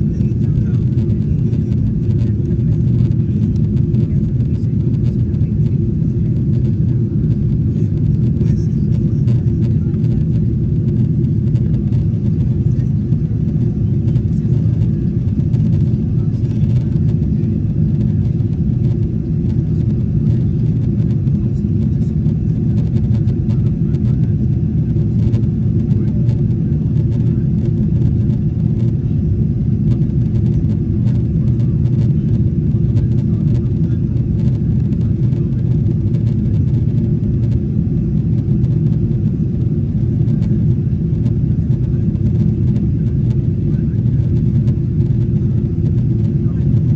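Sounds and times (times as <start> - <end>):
airflow over fuselage: 0.0 - 46.9
airplane cabin engine rumble: 0.0 - 46.9.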